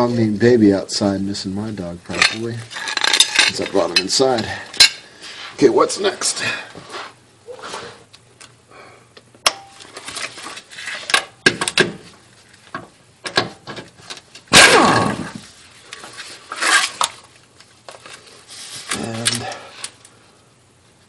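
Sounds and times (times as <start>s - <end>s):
metal tools clinking: 2.1s - 5.0s.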